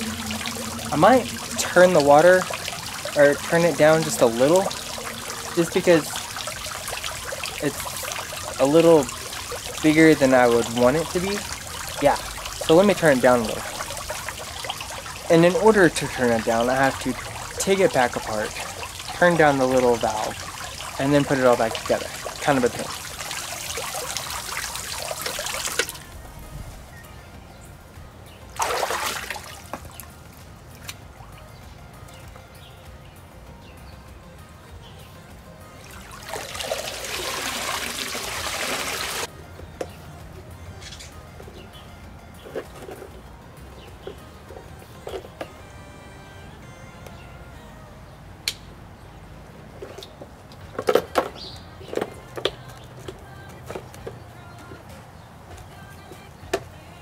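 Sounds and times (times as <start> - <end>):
pond fountain spraying: 0.0 - 26.2, 28.4 - 31.5, 35.8 - 39.3
hand splashing in water: 28.6 - 29.7.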